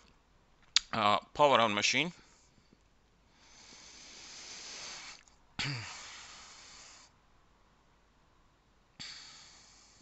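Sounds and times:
person breathing in: 3.3s - 7.2s.

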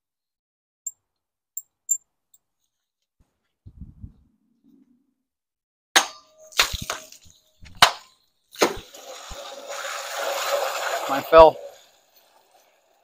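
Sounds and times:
sword hitting plastic jug: 6.0s - 9.0s
plastic jug clattering: 6.6s - 11.8s.

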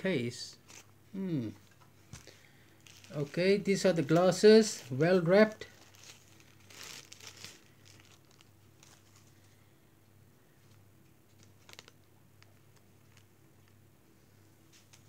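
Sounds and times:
wrapping crinkling and rustling: 0.5s - 0.9s, 1.6s - 9.6s, 10.6s - 13.8s, 14.7s - 15.0s.

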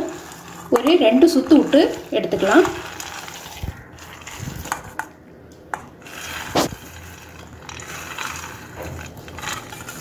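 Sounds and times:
wet sprouts rustling: 0.0s - 5.0s.

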